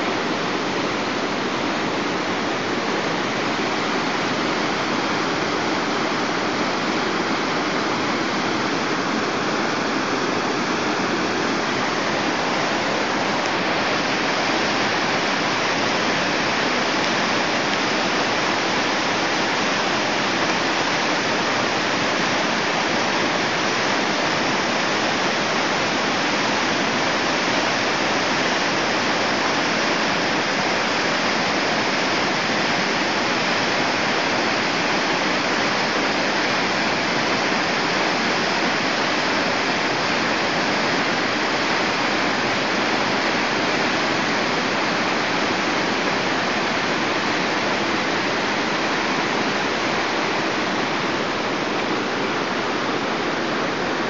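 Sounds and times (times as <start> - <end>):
whitewater rushing over weir: 0.0 - 54.0.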